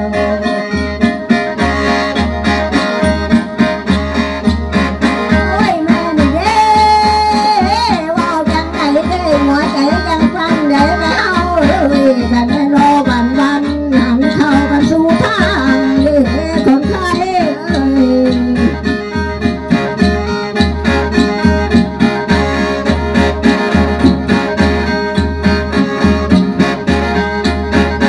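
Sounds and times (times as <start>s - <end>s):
person singing: 0.0s - 0.8s, 5.3s - 19.1s
mouth organ drone and melody: 0.0s - 6.5s, 8.1s - 28.0s
drum beat: 1.0s - 28.0s.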